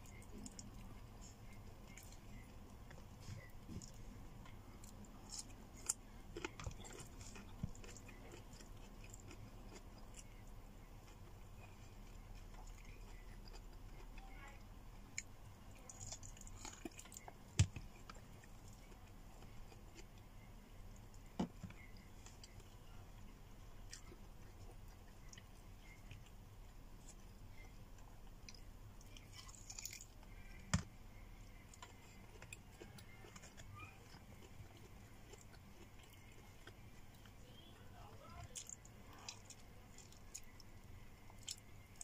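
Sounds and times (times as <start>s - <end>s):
person chewing: 0.0s - 42.0s.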